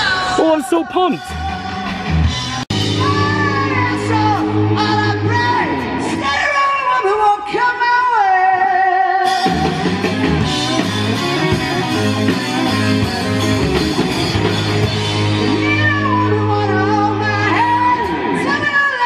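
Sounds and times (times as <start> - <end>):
rock band playing: 0.0 - 7.2, 9.2 - 19.0
singer holding long note: 2.9 - 9.3.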